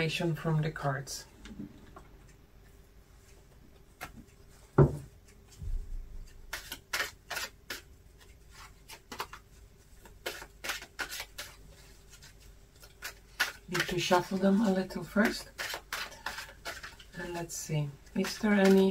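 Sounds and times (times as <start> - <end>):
knock: 4.8 - 5.9
cards being shuffled: 6.2 - 14.4.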